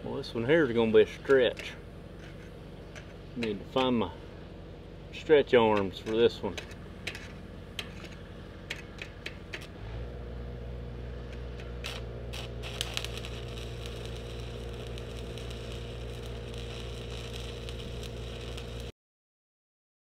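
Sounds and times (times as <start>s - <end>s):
welder engine humming: 0.0s - 18.9s
welding rod scratching: 1.0s - 4.0s, 5.9s - 9.8s, 11.2s - 18.9s
welding arc crackling: 11.2s - 18.9s.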